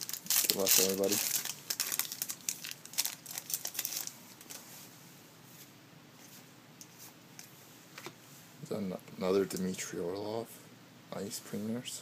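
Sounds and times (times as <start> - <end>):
foil wrapper crinkling and tearing: 0.0 - 4.6
faint rustles of cards: 0.0 - 8.6.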